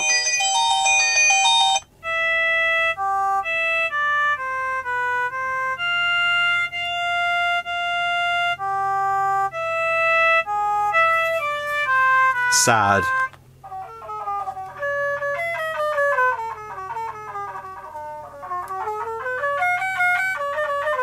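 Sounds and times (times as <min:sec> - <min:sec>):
slow synthesized ringtone melody: 0:00.0 - 0:03.5
busy many-note ringtone: 0:00.0 - 0:21.0.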